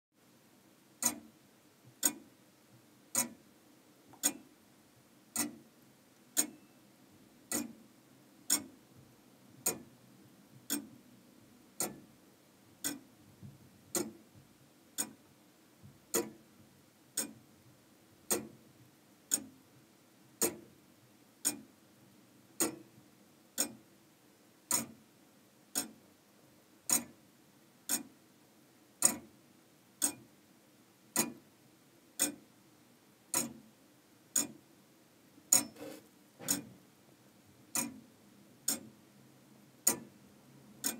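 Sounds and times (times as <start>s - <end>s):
pendulum clock ticking: 1.0s - 1.3s, 2.0s - 2.3s, 3.1s - 3.4s, 4.2s - 4.5s, 5.3s - 5.7s, 6.4s - 6.8s, 7.5s - 7.8s, 8.5s - 8.8s, 9.6s - 9.9s, 10.7s - 11.0s, 11.8s - 12.1s, 12.8s - 13.1s, 13.9s - 14.2s, 15.0s - 15.2s, 16.1s - 16.4s, 17.2s - 17.4s, 18.3s - 18.6s, 19.3s - 19.6s, 20.4s - 20.6s, 21.4s - 21.7s, 22.6s - 22.9s, 23.6s - 23.9s, 24.7s - 25.0s, 25.7s - 26.0s, 26.9s - 27.2s, 27.9s - 28.1s, 29.0s - 29.3s, 30.0s - 30.3s, 31.1s - 31.4s, 32.2s - 32.4s, 33.3s - 33.6s, 34.4s - 34.6s, 35.5s - 36.7s, 37.7s - 38.0s, 38.7s - 39.0s, 39.8s - 40.2s.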